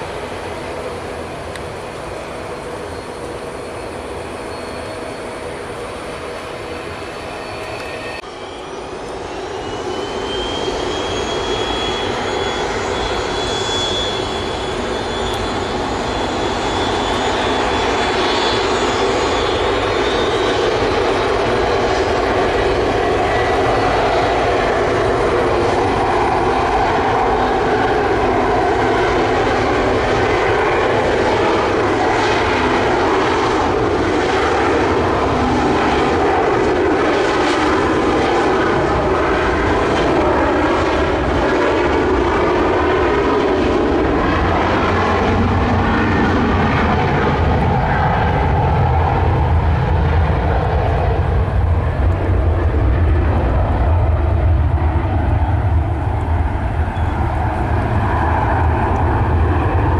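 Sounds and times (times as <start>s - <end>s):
jet engines at takeoff thrust: 0.0s - 59.9s.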